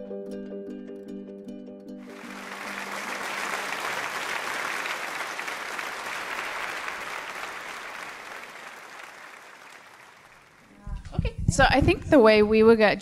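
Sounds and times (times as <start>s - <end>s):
audience applauding: 2.0s - 10.8s.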